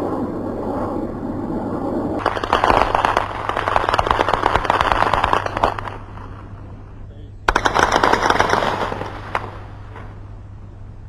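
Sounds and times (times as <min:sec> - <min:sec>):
automatic gunfire: 0:02.2 - 0:06.0, 0:07.5 - 0:09.7.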